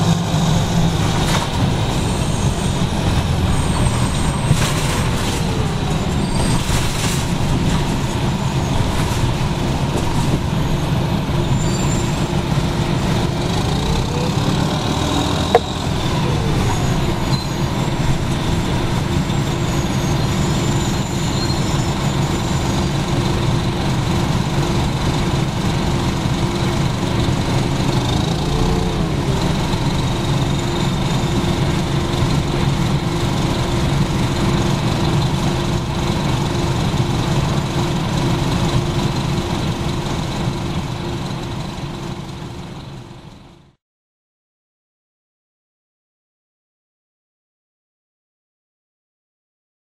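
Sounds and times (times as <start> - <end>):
transmission gear whine: 0.0 - 43.1
diesel bus engine rumbling: 0.0 - 43.8.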